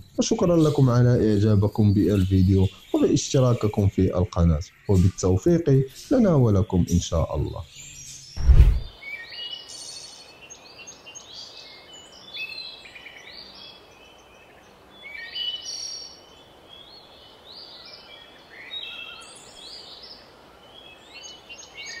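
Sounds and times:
light steady hiss: 0.0s - 22.0s
songbirds chirping: 0.0s - 22.0s.

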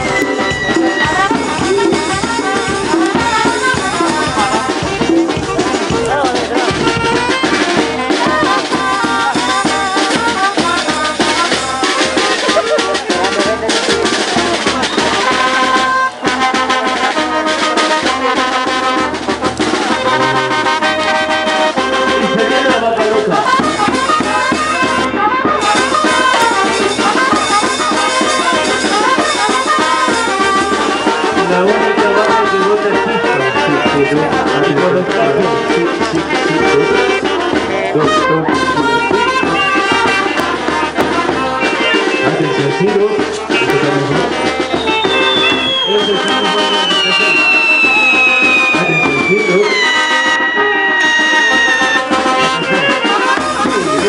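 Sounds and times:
trumpets and trombones playing: 0.0s - 54.0s.

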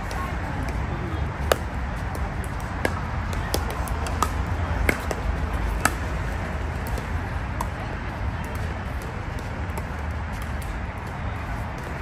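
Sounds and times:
paddles hitting plastic ball: 1.4s - 6.1s.

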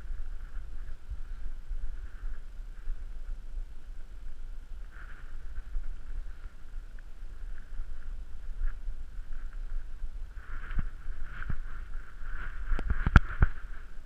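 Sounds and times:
faint high drone: 0.0s - 14.0s
wind rumbling on microphone: 0.0s - 14.0s.

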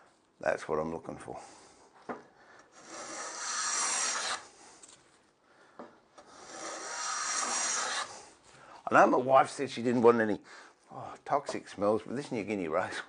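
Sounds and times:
plane shaving wood: 2.8s - 4.5s, 6.2s - 8.2s.

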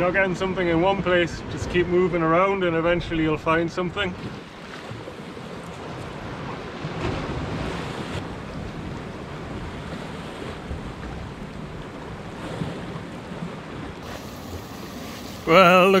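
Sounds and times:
wind buffeting microphone: 4.2s - 16.0s
waves washing against rocks: 5.0s - 16.0s.

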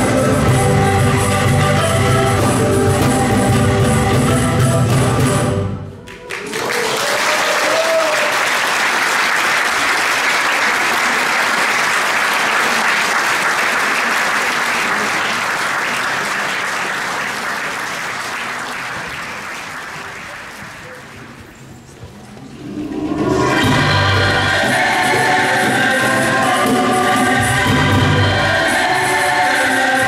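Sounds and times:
audience applauding: 6.0s - 21.6s.

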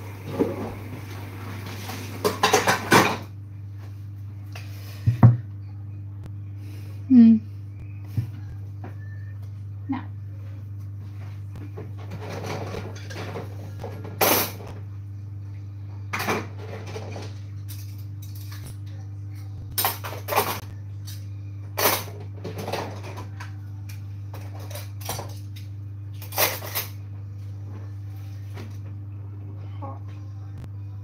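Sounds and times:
low hum: 0.0s - 31.0s
pans and utensils clattering: 1.6s - 3.3s, 12.0s - 14.6s, 16.1s - 18.6s, 21.8s - 23.4s.

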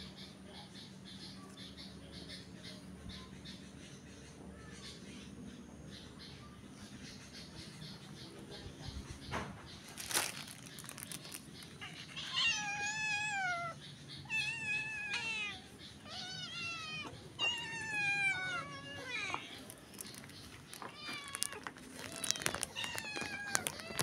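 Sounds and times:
cat meowing: 11.8s - 19.7s, 20.8s - 24.0s.

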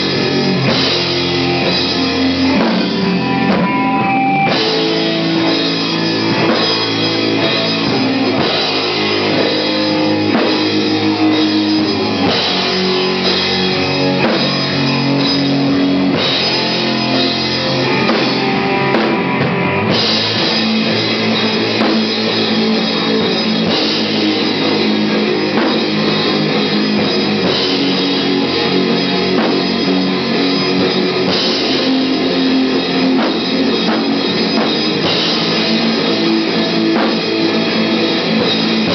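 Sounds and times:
rock band playing live: 0.0s - 38.9s.

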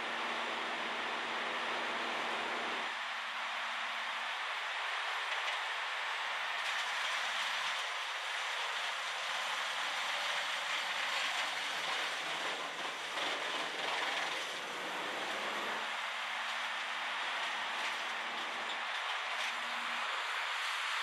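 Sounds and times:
wood chipper chipping wood: 6.6s - 20.9s.

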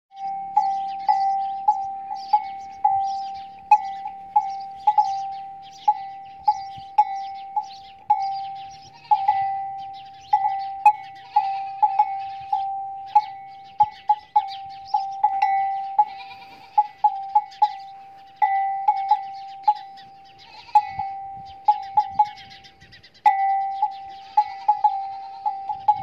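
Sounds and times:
faint high chirping: 0.1s - 26.0s
metal bell clanking: 0.2s - 19.9s.

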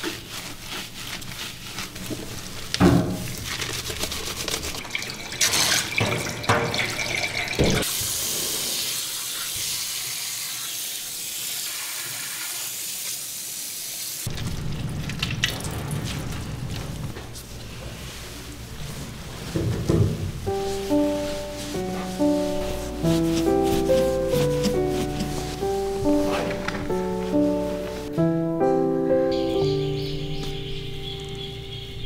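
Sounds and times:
hands squelching through lather: 0.0s - 5.6s, 20.5s - 27.9s
shower sprayer hissing: 4.0s - 14.3s, 20.4s - 28.1s.

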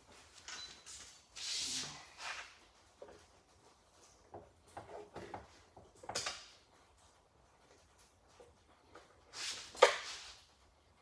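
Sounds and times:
clicks and knocks of hand work: 2.2s - 10.2s.

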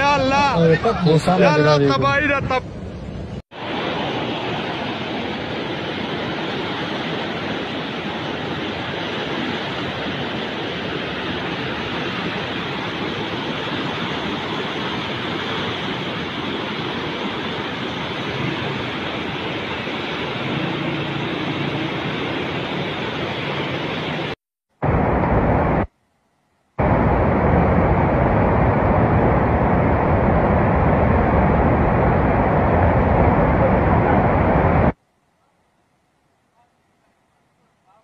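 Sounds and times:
flood river rushing: 3.6s - 24.4s.

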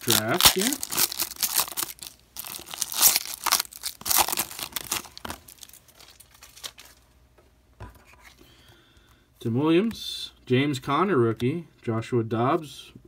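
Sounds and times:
foil wrapper tearing and crinkling: 0.0s - 7.0s.

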